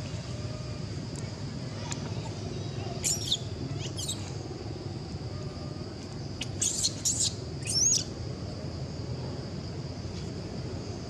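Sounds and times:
infant monkey squeaking: 2.9s - 4.3s, 6.4s - 8.1s
monkey squealing: 3.0s - 4.2s, 6.4s - 8.0s.

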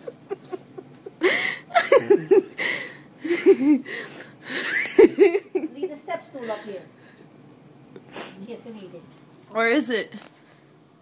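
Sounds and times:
person laughing hard: 0.0s - 5.7s.

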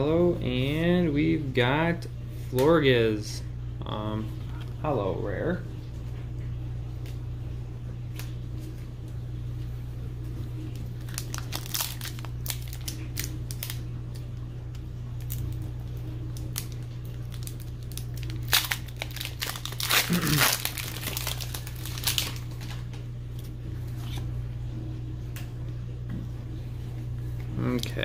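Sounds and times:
steady low hum: 0.0s - 28.0s
foil wrapper crinkling and tearing: 10.7s - 23.0s.

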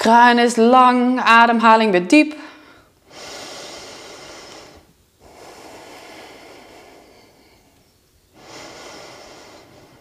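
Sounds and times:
woman breathing deeply: 2.4s - 10.0s.

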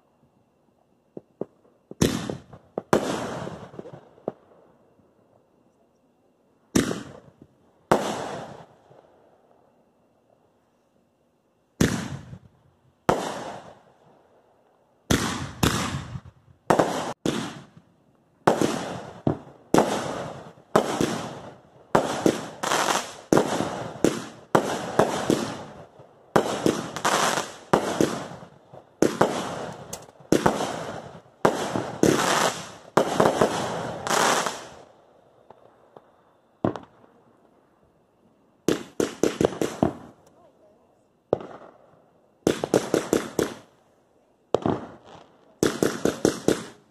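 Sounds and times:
firework bangs: 1.1s - 4.5s, 6.7s - 8.9s, 11.8s - 13.8s, 15.0s - 37.1s, 38.6s - 40.3s, 41.3s - 43.7s, 44.5s - 46.9s.

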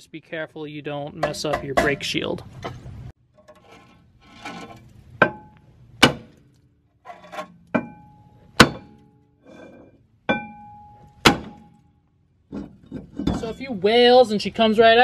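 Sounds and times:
sledgehammer striking metal disc: 5.2s - 6.6s, 7.3s - 9.2s, 10.3s - 11.8s.

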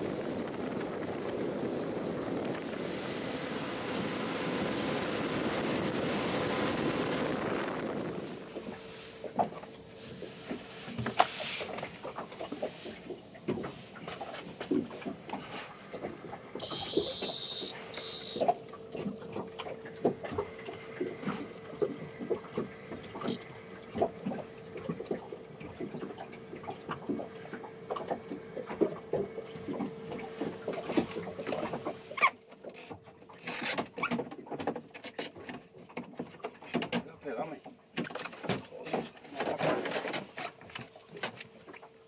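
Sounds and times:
waves lapping against boat hull: 0.0s - 42.0s
faint steady hum: 13.2s - 32.6s.

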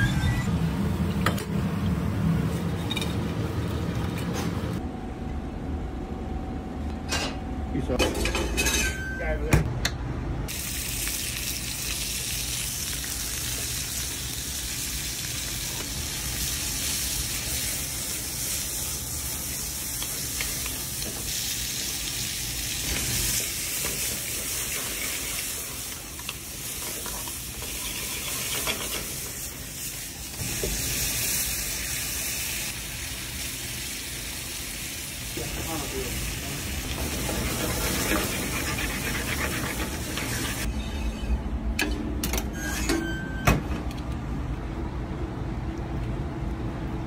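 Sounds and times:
meat sizzling in a skillet: 10.5s - 35.3s.

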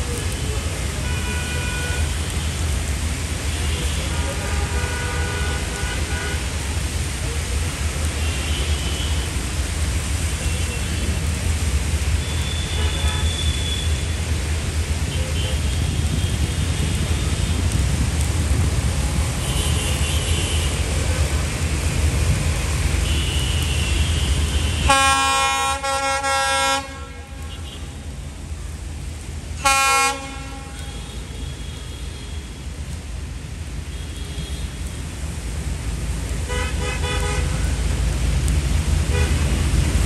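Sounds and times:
diesel locomotive horn: 12.2s - 13.8s, 23.0s - 27.9s, 29.6s - 31.8s, 36.5s - 37.8s, 39.1s - 39.5s.

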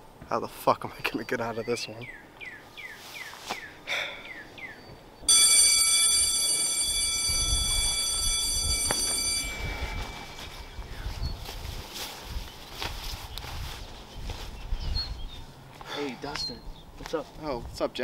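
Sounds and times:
bird chirping: 1.0s - 5.5s, 9.4s - 11.5s
high-pitched multi-tone ringing: 5.3s - 11.4s.

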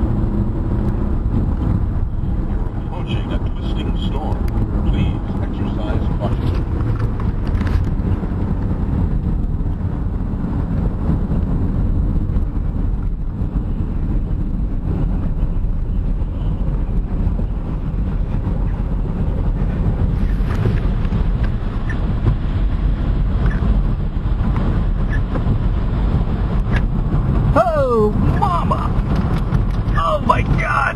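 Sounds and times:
wind and road noise in car: 0.0s - 30.9s.

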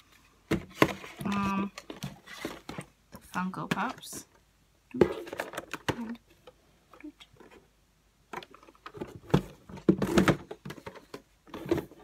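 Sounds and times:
cardboard boxes knocking together: 8.9s - 12.0s.

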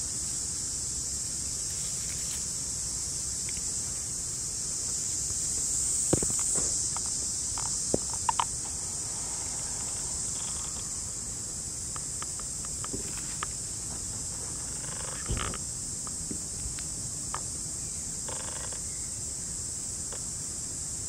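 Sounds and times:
insects chirring: 0.0s - 21.0s
clicks and crackles of dry leaves: 1.6s - 2.5s.

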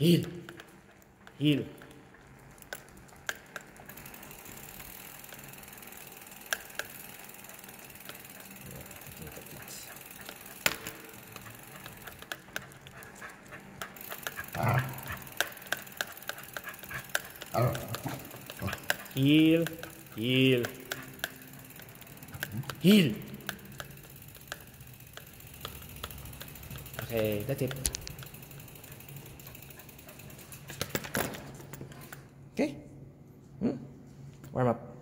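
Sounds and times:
bicycle rolling on concrete: 0.0s - 32.4s
sharp clicks: 13.6s - 20.0s.

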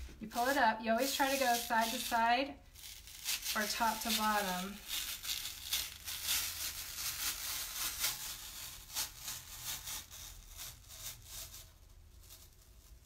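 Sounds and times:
adhesive transfer peeling crinkling: 0.0s - 13.0s.

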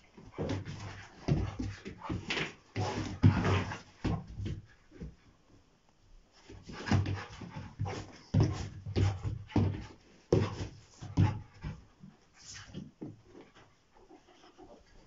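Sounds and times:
dogs scuffling: 0.0s - 5.2s, 6.4s - 15.0s
dog panting huffs: 6.6s - 12.7s.

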